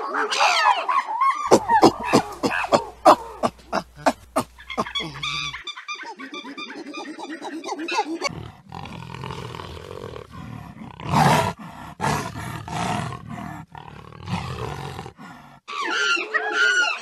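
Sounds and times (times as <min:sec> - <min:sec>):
jaguar roaring: 0:01.5 - 0:05.6.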